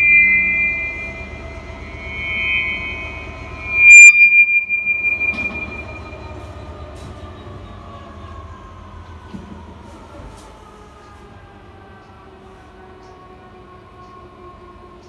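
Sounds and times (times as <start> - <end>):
loud metallic clang: 0.0 - 6.4
high ringing tone: 0.0 - 6.8
high squealing metallic tones: 0.0 - 7.9.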